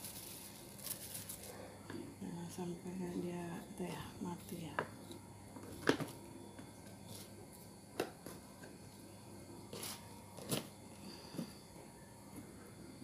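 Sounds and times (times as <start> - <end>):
plastic bag crinkling: 0.0 - 1.6.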